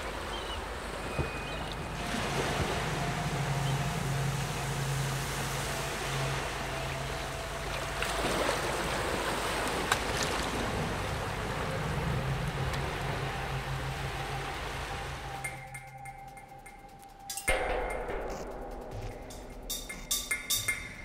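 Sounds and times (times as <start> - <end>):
rushing water: 0.0 - 16.6
low hum: 0.8 - 21.0
sharp tick: 15.4 - 21.0.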